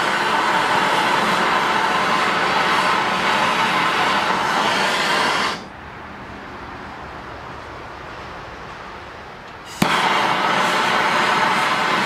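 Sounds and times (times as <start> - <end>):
torch flame hissing loudly: 0.0 - 5.7, 9.6 - 12.0.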